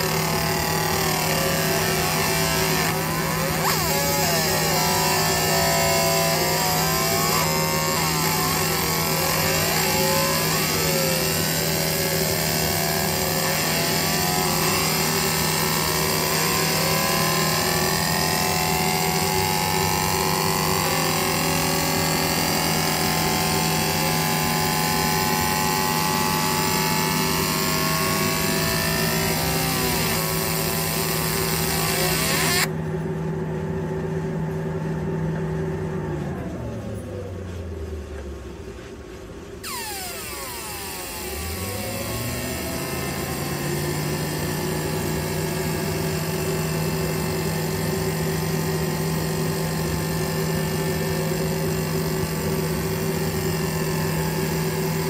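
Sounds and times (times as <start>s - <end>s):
laser engraver hissing and whining: 0.0s - 32.7s, 39.6s - 55.0s
constant machine hum: 0.0s - 55.0s.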